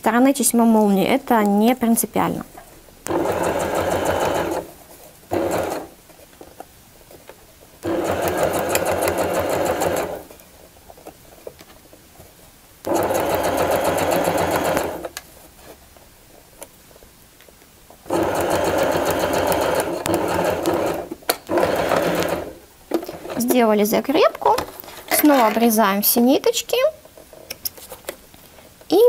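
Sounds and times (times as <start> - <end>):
sewing machine stitching: 3.1 - 4.7, 5.3 - 5.9, 7.8 - 10.3, 12.9 - 15.1, 18.1 - 22.6.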